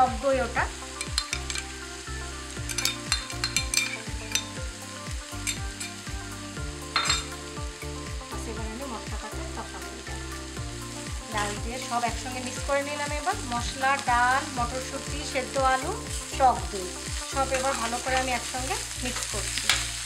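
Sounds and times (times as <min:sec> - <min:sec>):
food sizzling in oil: 0:00.0 - 0:20.0
oil popping: 0:01.0 - 0:01.8, 0:02.6 - 0:04.4.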